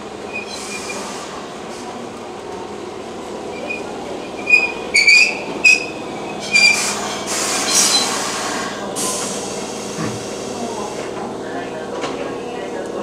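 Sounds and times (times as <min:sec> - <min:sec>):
high-pitched brake squeals: 0:00.3 - 0:01.1, 0:03.6 - 0:08.4.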